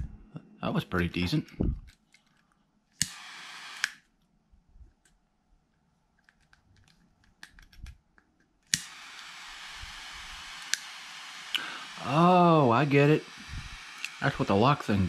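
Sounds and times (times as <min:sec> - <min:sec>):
torch hissing: 0:03.0 - 0:04.0, 0:08.7 - 0:15.0
piezo igniter snap: 0:08.7 - 0:09.3.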